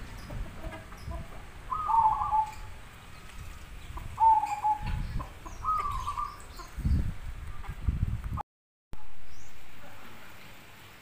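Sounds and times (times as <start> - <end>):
dove cooing: 0.6 - 2.8, 4.1 - 6.4.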